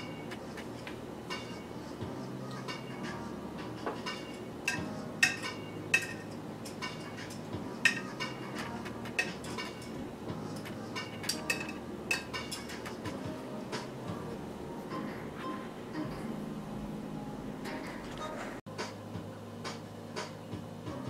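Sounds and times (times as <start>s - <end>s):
clinks on ceramic plate: 3.9s - 8.1s, 11.0s - 12.8s.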